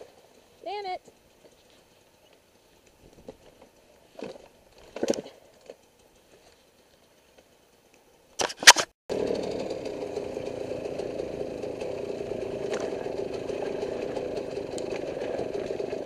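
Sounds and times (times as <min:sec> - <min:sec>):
dirt bike engine idling: 0:09.1 - 0:16.0.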